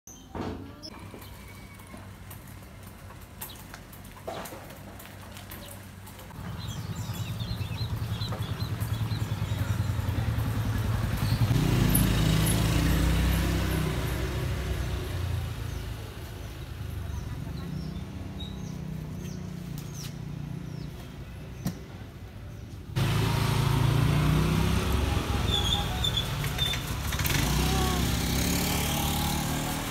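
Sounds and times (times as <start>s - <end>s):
vehicle engine running: 1.0s - 19.8s, 22.9s - 29.9s
birds chirping: 5.2s - 14.0s, 15.1s - 29.2s.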